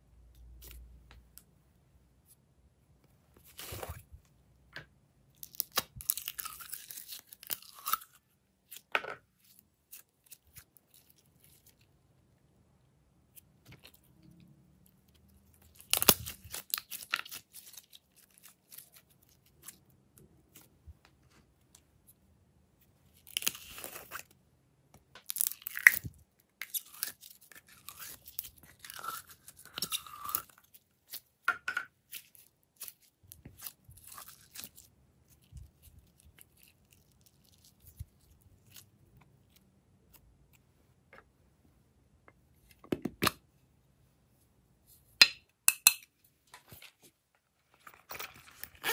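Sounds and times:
slime crackling and squelching: 5.3s - 11.9s, 14.9s - 20.7s, 23.0s - 24.4s, 25.2s - 31.4s, 32.0s - 40.3s.

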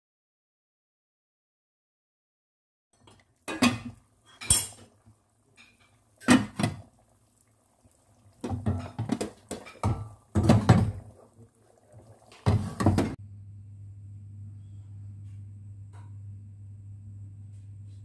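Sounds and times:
utensils and pot clattering: 3.0s - 5.0s, 5.6s - 6.8s, 8.4s - 11.1s.

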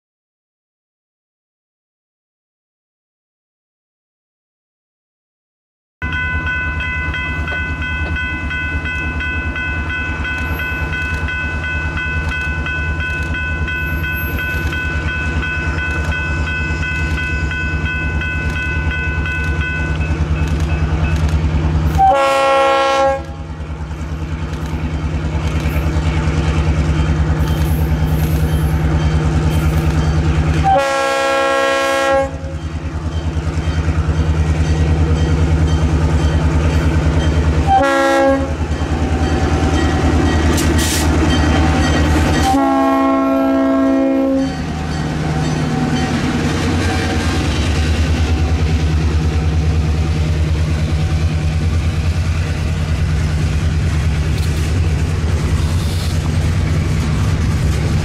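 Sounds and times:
locomotive engine rumble: 6.3s - 58.0s
locomotive horn blasts: 21.9s - 23.4s, 30.6s - 32.6s, 37.6s - 38.6s, 42.4s - 44.7s.

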